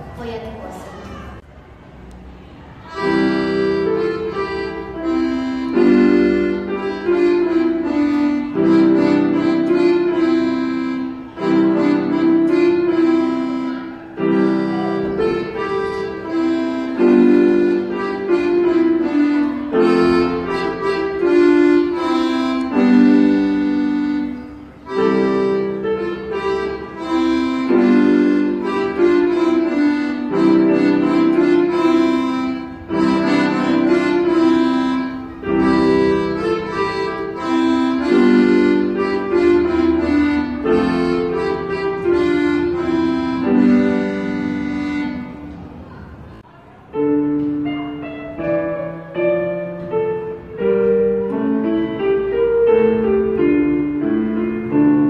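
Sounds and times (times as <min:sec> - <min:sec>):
button accordion playing a tune: 0:02.8 - 0:45.8.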